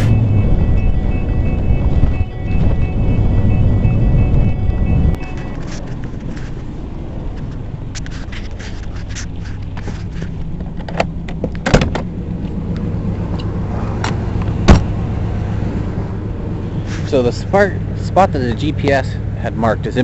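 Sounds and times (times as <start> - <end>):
motorhome engine droning: 0.0 - 20.0
rattles and clicks: 5.1 - 14.5.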